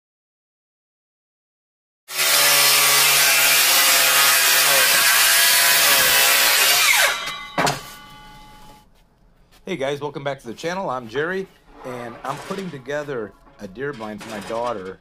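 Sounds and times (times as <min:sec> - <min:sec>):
circular saw cutting wood: 0:02.1 - 0:08.7, 0:11.2 - 0:15.0.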